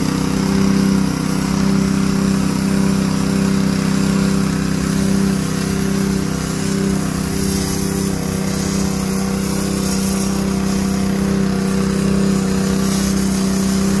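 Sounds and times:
small engine humming: 0.0 - 14.0
spray wand hissing: 0.0 - 14.0.

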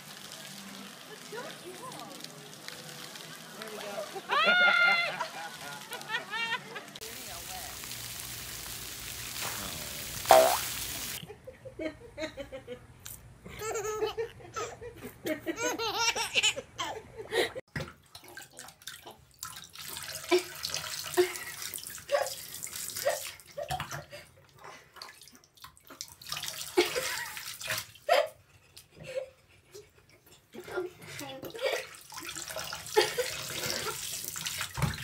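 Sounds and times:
running bath water hiss: 0.0 - 11.2, 19.8 - 23.4, 26.3 - 27.9, 31.6 - 35.0
baby laughing and squealing: 13.6 - 14.8, 15.6 - 17.0.

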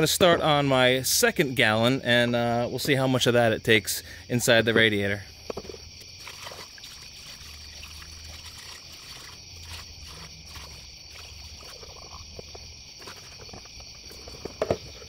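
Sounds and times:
crickets chirping: 0.0 - 15.0
liquid trickling through funnel: 6.1 - 12.7.

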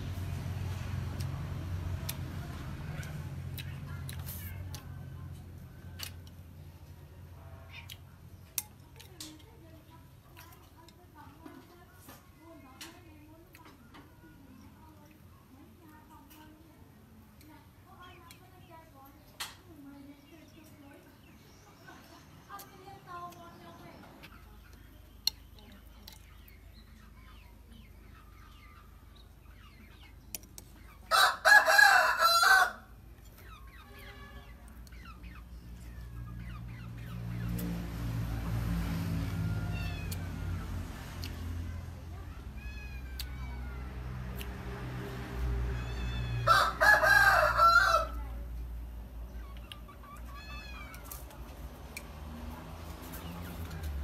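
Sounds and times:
rooster crowing: 31.1 - 32.9, 45.9 - 48.2.

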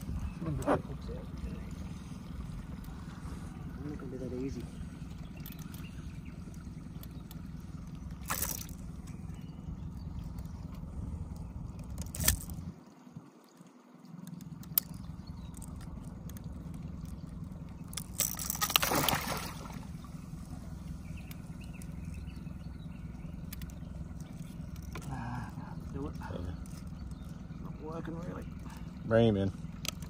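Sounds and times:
low rumble: 0.0 - 13.3
water lapping against boat hull: 0.0 - 30.0
water splashing: 8.0 - 9.2, 10.1 - 22.2.

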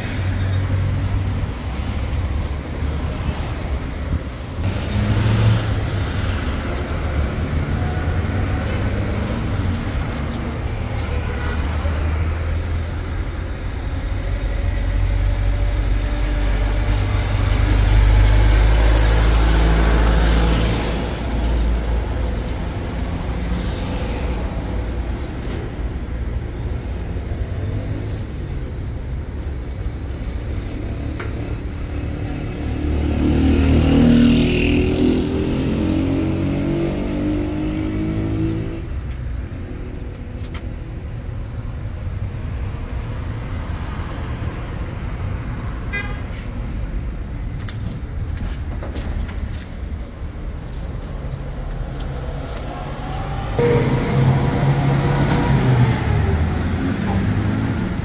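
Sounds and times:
low rumble of vehicle engines: 0.0 - 58.0
vehicle passing close by: 4.6 - 10.3, 51.2 - 58.0.

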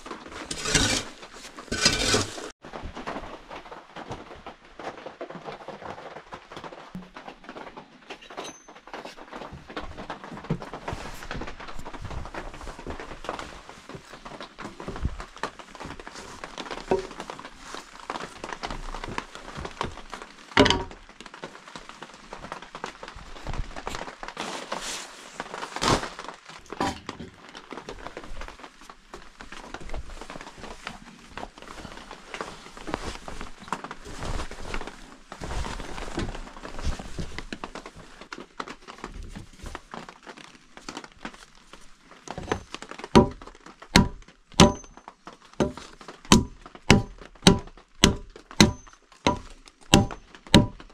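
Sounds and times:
wood knocking and rustling: 0.0 - 3.2, 7.0 - 21.3, 42.3 - 50.9
hatchet chopping log: 43.2 - 43.4, 44.0 - 44.9, 45.6 - 50.8.

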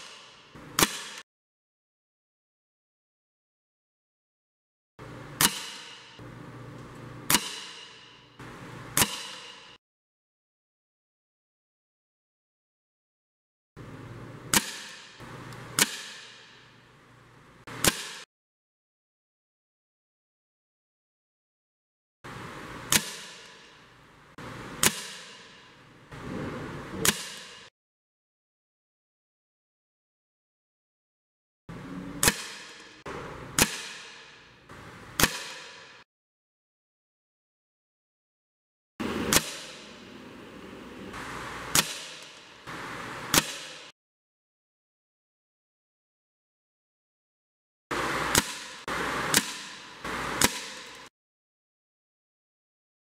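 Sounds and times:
air rifle shots: 7.3 - 8.1, 8.9 - 9.8, 24.8 - 25.8, 33.6 - 34.4, 35.2 - 36.0, 39.0 - 40.3, 41.1 - 42.6, 43.2 - 43.9, 48.3 - 51.1.

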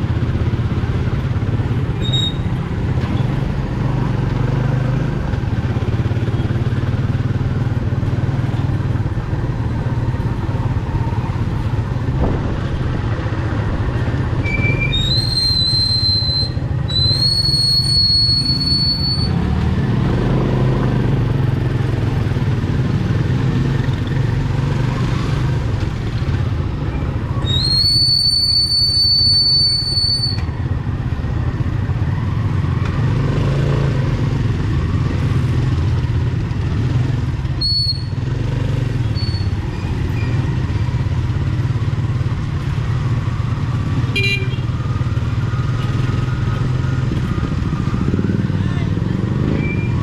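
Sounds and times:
motorcycle engine running: 0.0 - 15.5, 30.6 - 50.0
high whistling tone: 14.5 - 19.4, 27.3 - 30.5.

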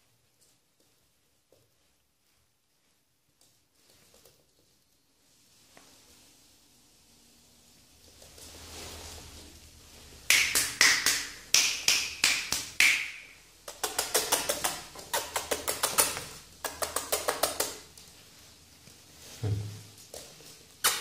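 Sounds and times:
fast finger clicks: 10.3 - 17.8.

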